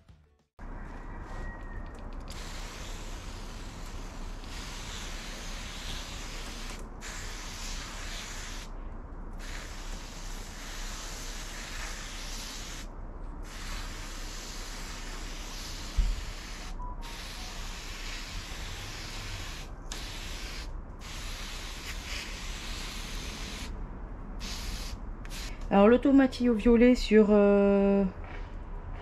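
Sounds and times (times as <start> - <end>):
hose spraying water: 2.2 - 8.7, 9.4 - 23.7.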